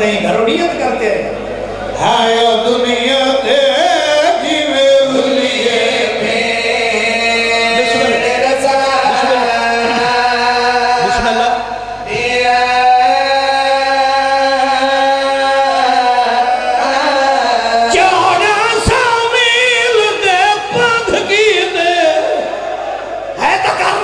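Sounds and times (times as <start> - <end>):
men chanting together: 2.5 - 14.2.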